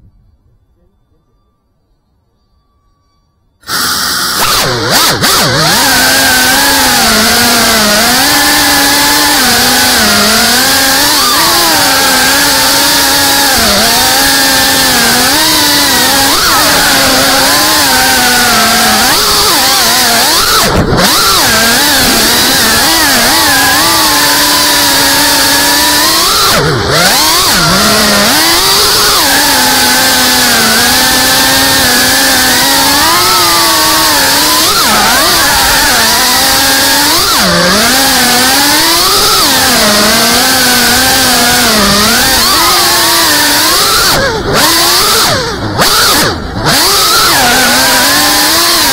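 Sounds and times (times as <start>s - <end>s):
drone motors buzzing: 3.6s - 48.9s.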